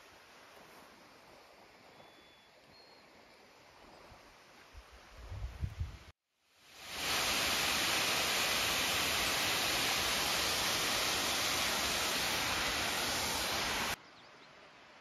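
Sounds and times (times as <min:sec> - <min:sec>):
waterfall rushing: 0:06.7 - 0:14.0.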